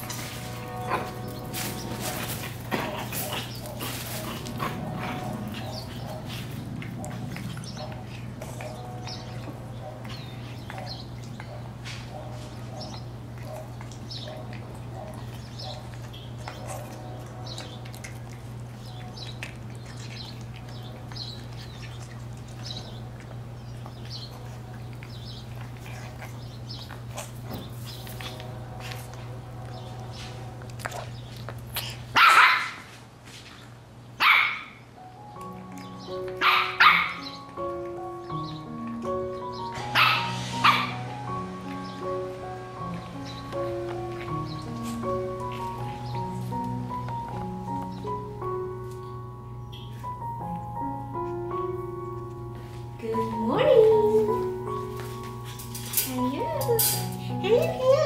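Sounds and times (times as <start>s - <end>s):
soft background music: 0.0s - 32.6s, 34.2s - 58.0s
birds chirping: 0.0s - 32.7s, 33.5s - 58.0s
puppy barking: 2.8s - 18.3s, 32.1s - 32.9s, 34.2s - 34.8s, 36.2s - 37.4s, 39.7s - 41.2s.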